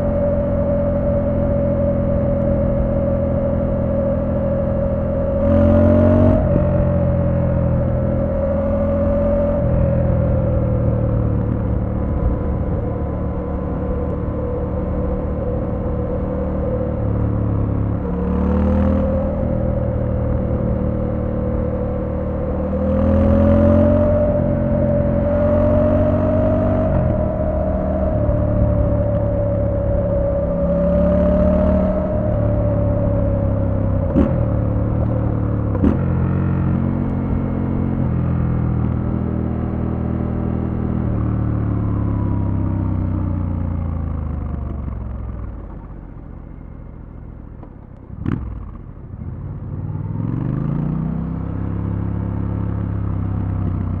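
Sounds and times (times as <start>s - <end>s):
steady whine: 0.0s - 39.7s
motorcycle engine revving: 0.0s - 46.2s, 48.1s - 54.0s.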